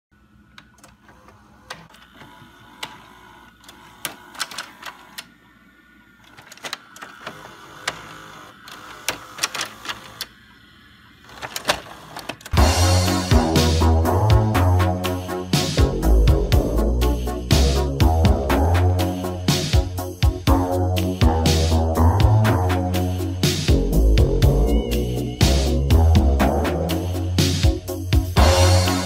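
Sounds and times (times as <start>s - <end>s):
tape mechanism clicking and clunking: 0.5s - 5.3s, 6.2s - 10.4s, 11.3s - 12.6s.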